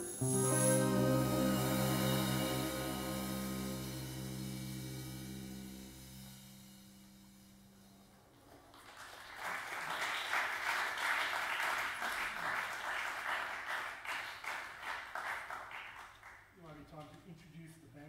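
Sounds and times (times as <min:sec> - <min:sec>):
band holding low note: 0:00.0 - 0:08.0
audience applauding: 0:08.7 - 0:16.4.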